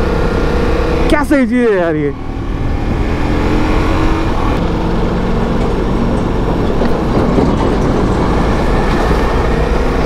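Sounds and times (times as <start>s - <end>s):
motorcycle engine cruising: 0.0s - 10.0s
wind noise rumble: 2.2s - 10.0s.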